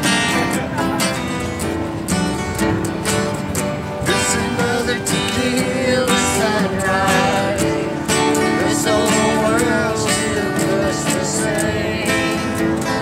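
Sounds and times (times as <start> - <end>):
acoustic guitar strumming: 0.0 - 13.0
man singing: 4.0 - 13.0.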